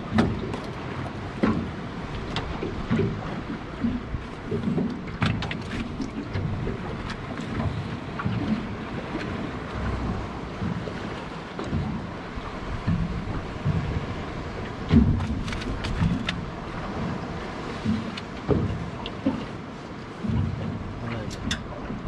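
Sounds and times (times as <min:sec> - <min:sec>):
water slapping against boat hull: 0:00.0 - 0:22.0
wind on microphone: 0:00.0 - 0:22.0
sharp clicks and knocks: 0:21.1 - 0:21.7.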